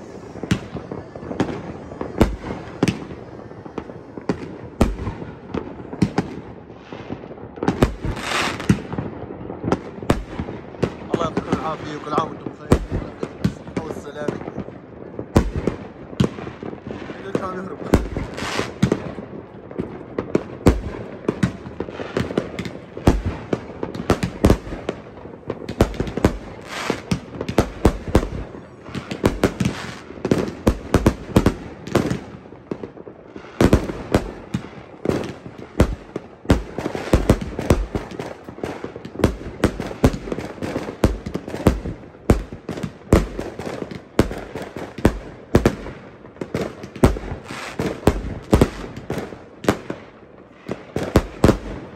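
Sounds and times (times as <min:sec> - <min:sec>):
fireworks bangs and crackles: 0:00.0 - 0:51.9.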